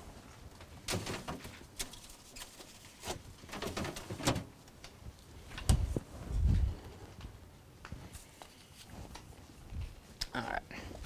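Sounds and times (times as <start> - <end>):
items clicking in refrigerator: 0.7 - 4.5.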